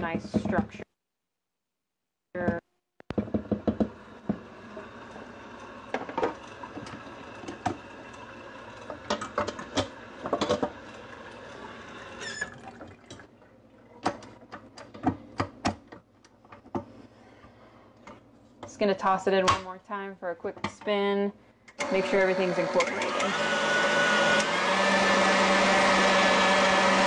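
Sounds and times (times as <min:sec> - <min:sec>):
mixer hum: 0:03.1 - 0:13.7, 0:21.8 - 0:27.0.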